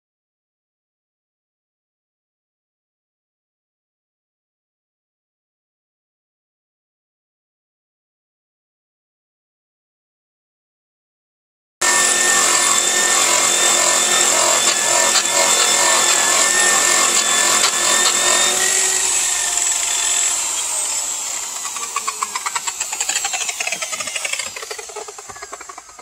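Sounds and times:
electric buffer whining: 11.8s - 26.0s.

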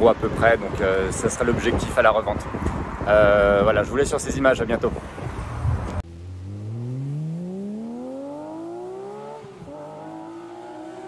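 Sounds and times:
car engine accelerating hard: 6.0s - 11.0s.

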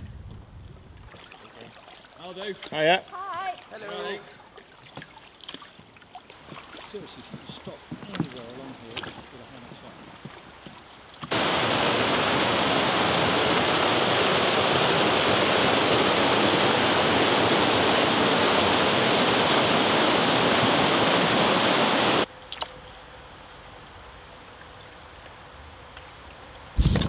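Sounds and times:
waterfall rushing: 11.3s - 22.3s.

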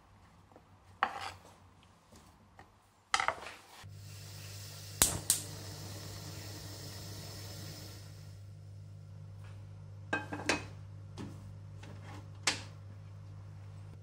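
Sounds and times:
gas burner hissing: 3.8s - 8.6s
igniter clicks: 5.0s - 5.5s.

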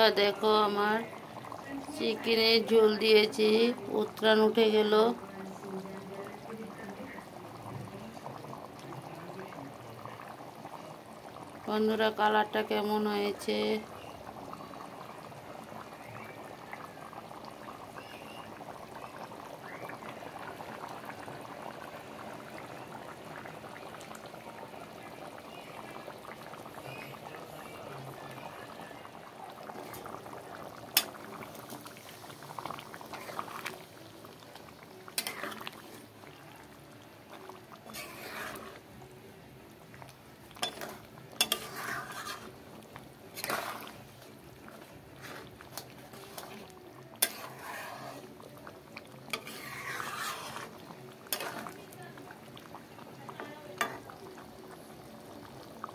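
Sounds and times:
curry bubbling in pan: 0.0s - 55.9s
spatula scraping metal pan: 35.2s - 35.6s, 37.8s - 38.8s, 40.6s - 42.6s, 43.3s - 44.1s, 45.2s - 48.4s, 49.3s - 51.7s.

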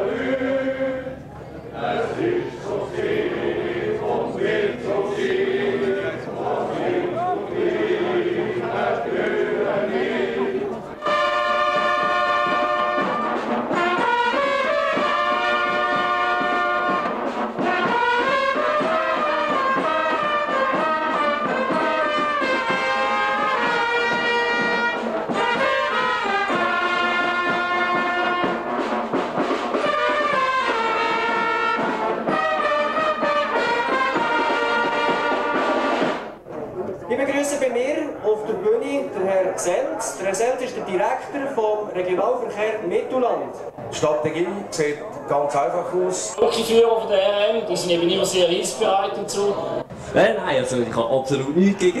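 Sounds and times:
brass chords: 1.8s - 36.4s
snare drums: 11.0s - 36.4s.

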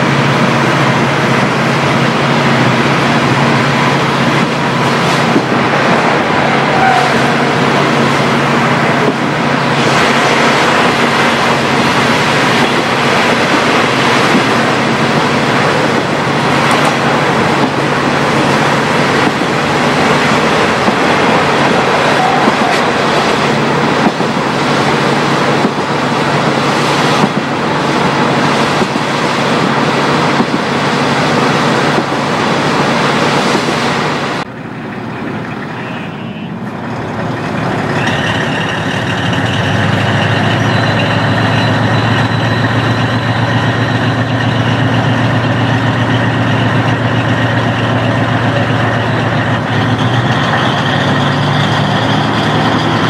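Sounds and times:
diesel railcar engine running: 0.0s - 53.0s
wheel and rail noise: 0.0s - 53.0s.

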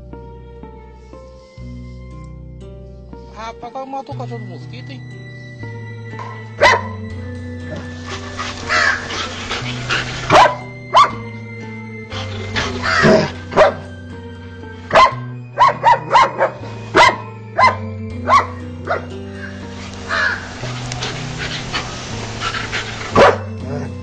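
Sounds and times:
low background music: 0.0s - 24.0s
dog barking: 6.6s - 7.0s, 7.7s - 11.2s, 12.2s - 13.9s, 14.9s - 19.2s, 21.0s - 23.8s.

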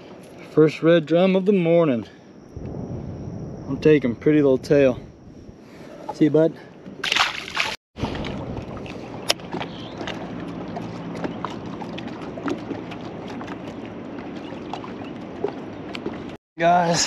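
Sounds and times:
wind on microphone: 2.6s - 5.8s, 8.0s - 9.4s
water lapping against boat hull: 6.8s - 16.4s.

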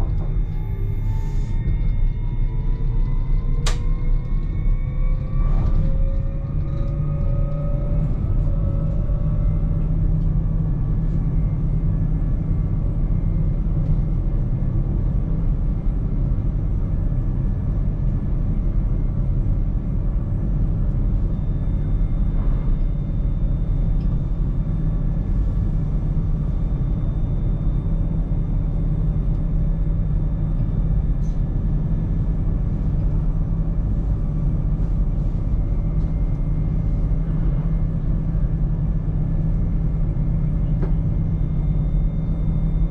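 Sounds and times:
electric train low rumble: 0.0s - 42.9s.

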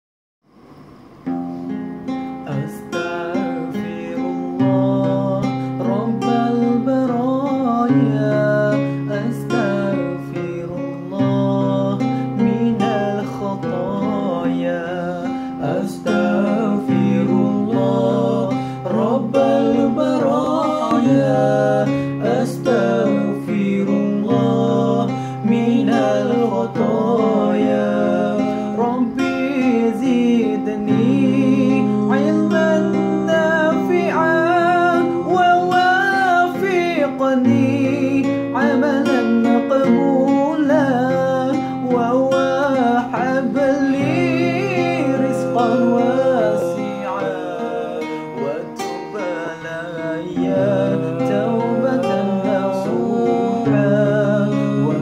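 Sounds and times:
acoustic guitar: 0.4s - 55.0s
men singing devotional song: 2.4s - 55.0s.

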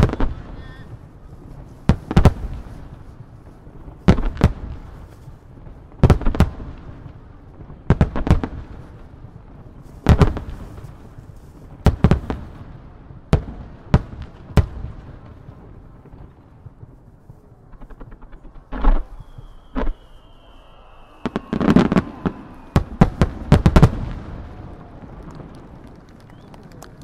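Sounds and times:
firework shells booming: 17.7s - 27.0s.

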